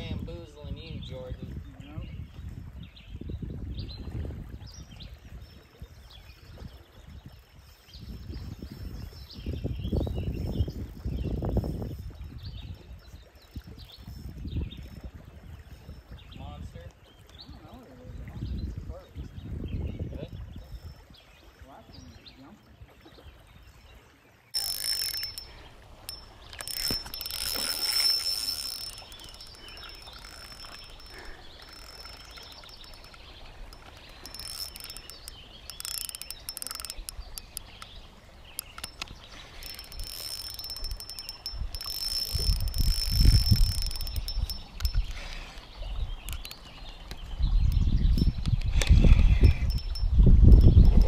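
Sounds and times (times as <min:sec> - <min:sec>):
fishing reel whirring and ticking: 0:24.6 - 0:51.0.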